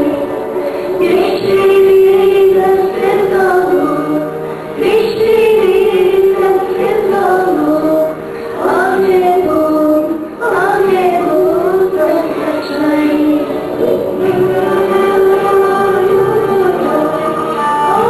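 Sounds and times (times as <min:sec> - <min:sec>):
girl singing into a microphone: 0:00.0 - 0:18.0.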